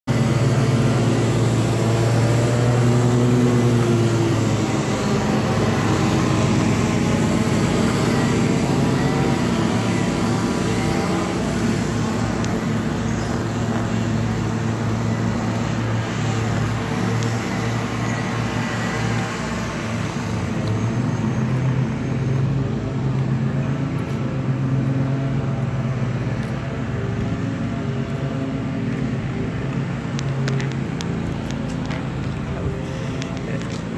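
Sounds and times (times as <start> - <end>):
motor humming: 0.1 - 21.2.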